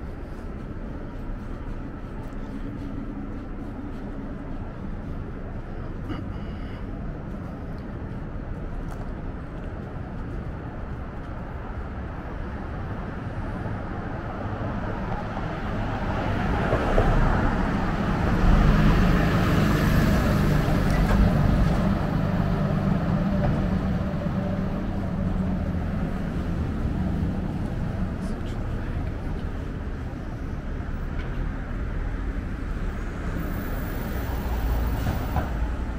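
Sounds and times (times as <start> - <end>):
cars driving past: 11.3 - 35.9.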